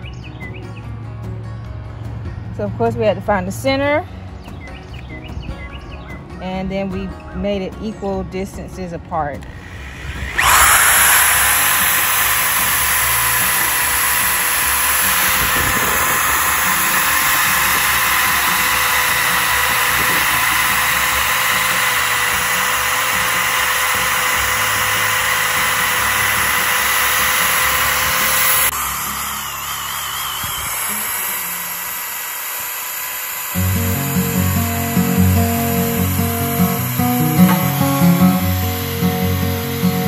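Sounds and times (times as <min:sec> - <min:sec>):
electric drill boring through wood: 0:09.4 - 0:40.0.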